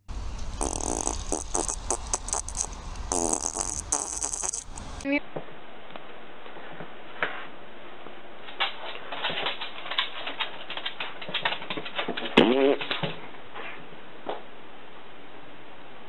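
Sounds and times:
dog claws clicking on wooden floor: 0:08.5 - 0:13.2.

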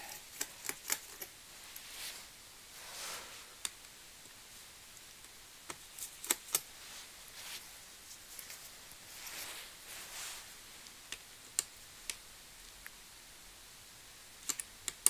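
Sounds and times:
soft rubbing: 0:01.1 - 0:03.6, 0:05.8 - 0:10.9.

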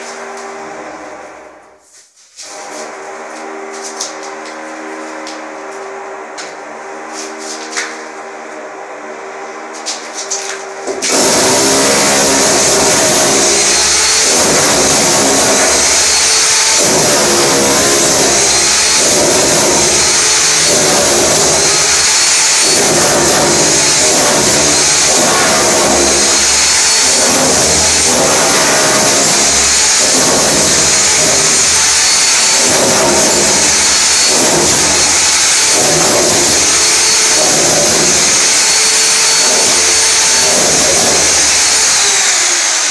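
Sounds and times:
steady hum: 0:00.0 - 0:41.5
hammer drill chiselling wall: 0:10.2 - 0:42.9.

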